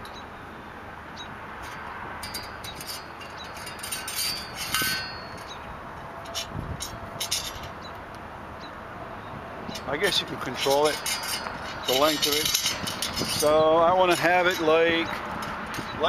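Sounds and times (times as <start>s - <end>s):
metal clicks and scrapes: 1.6s - 8.0s, 9.7s - 16.0s.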